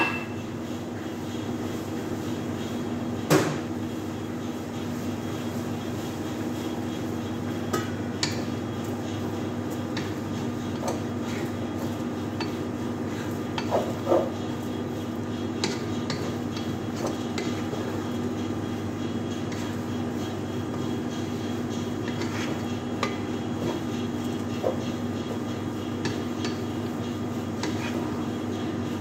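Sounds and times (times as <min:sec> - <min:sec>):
kitchen hum: 0:00.0 - 0:29.0
spatula scraping in a pot: 0:08.2 - 0:29.0.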